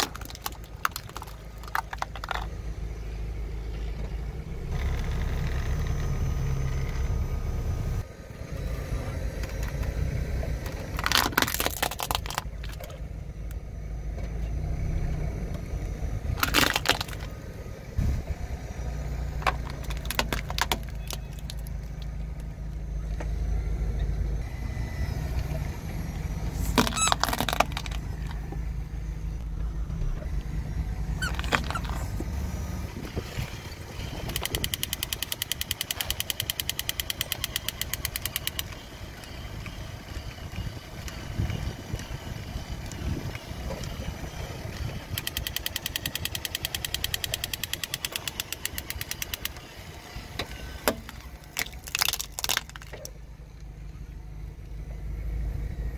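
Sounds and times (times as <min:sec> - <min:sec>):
plastic toys cracking and crunching: 0:00.0 - 0:02.6, 0:10.6 - 0:13.6, 0:16.3 - 0:17.5, 0:19.4 - 0:22.5, 0:26.6 - 0:28.6, 0:31.2 - 0:32.3, 0:34.0 - 0:39.5, 0:42.8 - 0:49.7, 0:50.4 - 0:53.2
car engine running low: 0:00.0 - 0:55.9.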